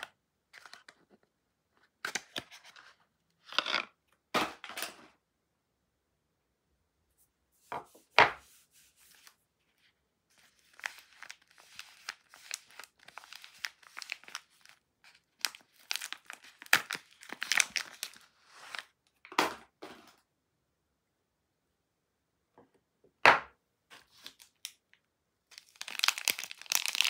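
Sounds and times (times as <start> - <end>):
wrapper crinkling and tearing: 10.4 - 18.9, 24.1 - 24.8, 25.5 - 27.0.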